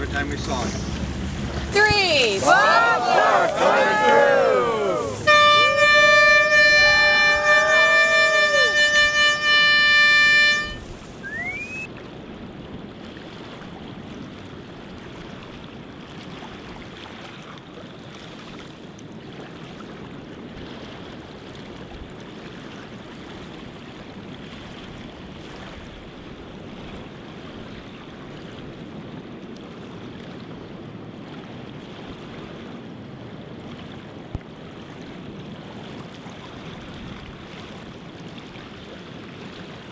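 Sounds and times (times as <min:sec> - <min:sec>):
water rushing from boat wake: 0:00.0 - 0:39.9
long horn blast: 0:03.2 - 0:11.8.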